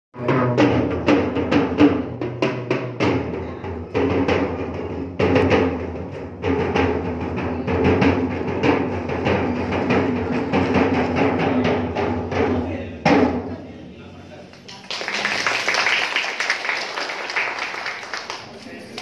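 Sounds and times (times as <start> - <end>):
tenor drums struck rapidly: 0.2 - 13.6.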